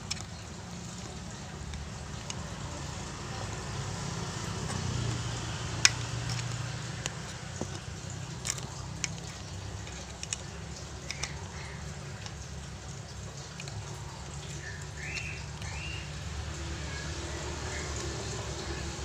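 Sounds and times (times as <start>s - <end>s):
screwdriver clicking and scraping metal: 0.0s - 16.0s.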